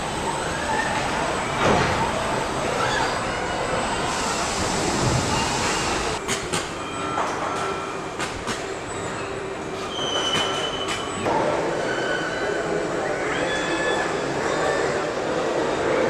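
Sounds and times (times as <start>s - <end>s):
machinery running: 0.0s - 9.8s.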